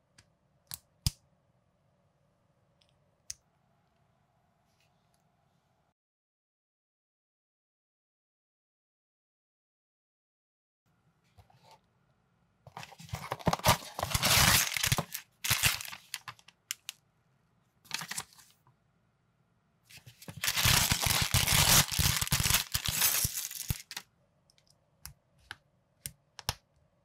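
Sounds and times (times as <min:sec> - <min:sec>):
plastic bag crinkling: 0:13.0 - 0:16.9, 0:20.3 - 0:24.0
cardboard box tearing: 0:13.3 - 0:16.0
plastic pieces clicking together: 0:20.5 - 0:24.0.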